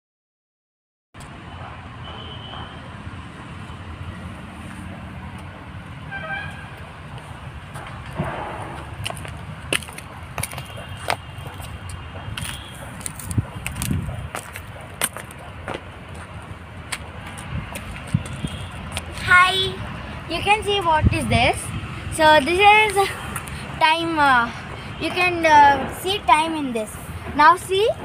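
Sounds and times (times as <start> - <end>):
distant road traffic rumble: 1.2 - 28.0
horn toot: 6.1 - 6.8.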